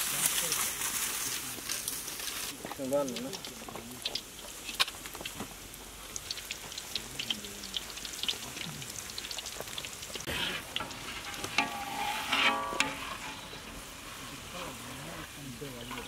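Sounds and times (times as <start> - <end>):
deep-frying sizzle with crackling pops: 0.0 - 16.0
metal skimmer scraping pan: 10.2 - 16.0.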